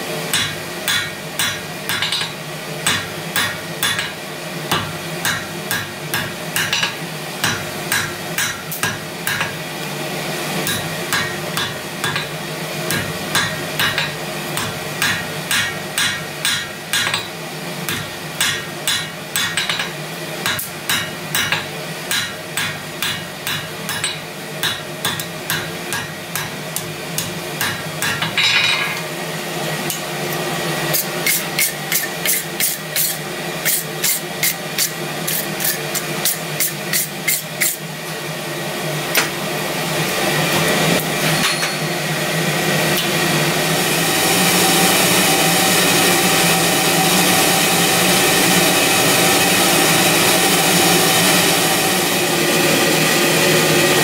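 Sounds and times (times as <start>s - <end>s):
hammer striking hot steel on anvil: 0.3s - 9.6s, 10.6s - 29.1s, 30.9s - 37.8s, 41.0s - 42.2s.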